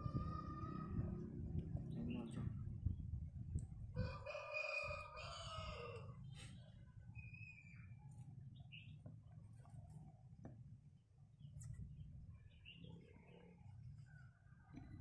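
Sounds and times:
faint bird chirps: 6.2 - 9.1.

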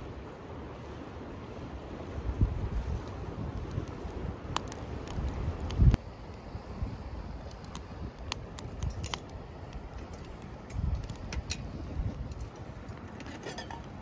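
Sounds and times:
wind rumbling on microphone: 0.0 - 14.0
light clicks and crackles: 2.4 - 6.5, 7.4 - 14.0.

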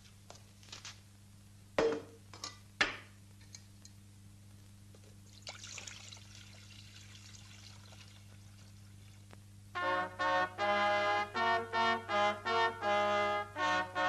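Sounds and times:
milk pouring into pot: 5.3 - 9.2.

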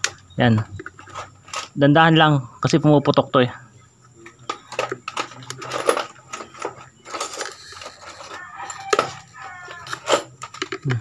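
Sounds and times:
plastic clicking and crackling: 7.9 - 11.0.

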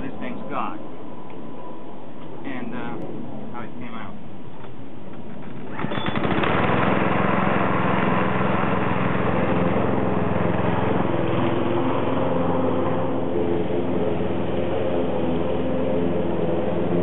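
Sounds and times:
lawn mower engine running: 5.2 - 17.0.

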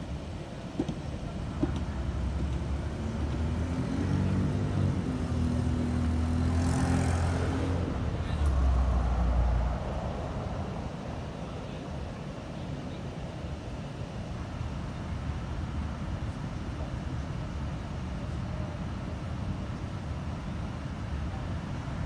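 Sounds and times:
car engine driving past: 2.2 - 11.4.

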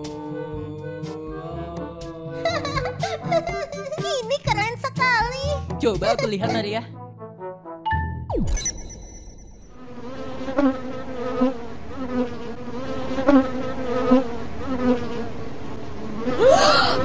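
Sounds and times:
bee buzzing: 9.8 - 16.4.

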